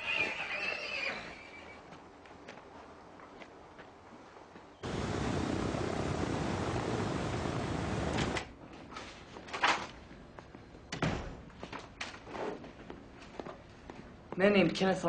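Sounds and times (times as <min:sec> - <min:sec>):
propeller aircraft engines droning: 0:04.8 - 0:08.6.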